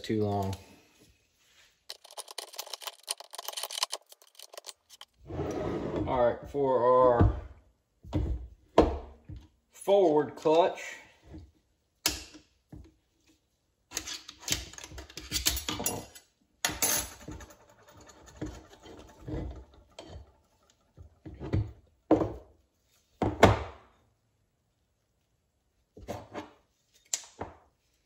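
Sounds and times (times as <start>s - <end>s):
metal parts clinking and scraping: 1.9s - 5.2s, 13.9s - 21.2s.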